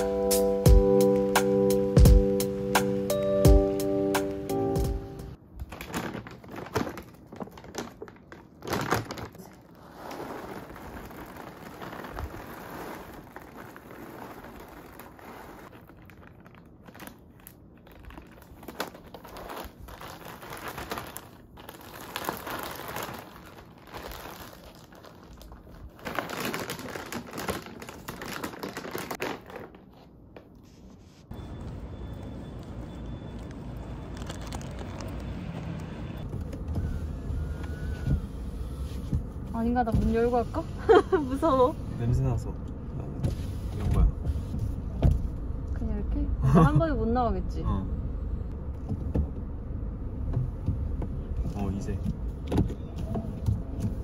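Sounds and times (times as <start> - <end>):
crinkling and rustling: 5.4 - 41.1.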